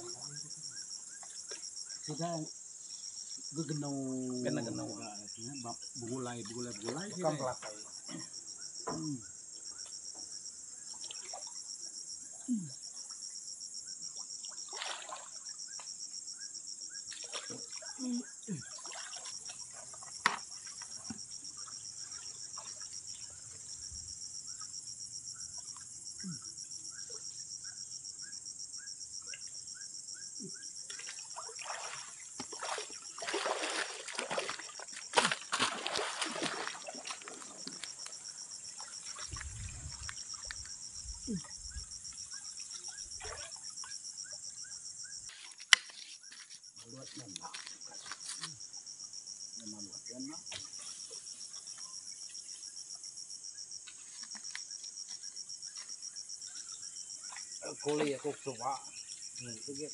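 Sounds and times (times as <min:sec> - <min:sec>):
insect chorus: 0:00.0 - 0:59.9
water splashing from wading: 0:10.9 - 0:11.6, 0:14.4 - 0:15.6, 0:17.1 - 0:23.4, 0:30.9 - 0:40.8, 0:42.4 - 0:43.9.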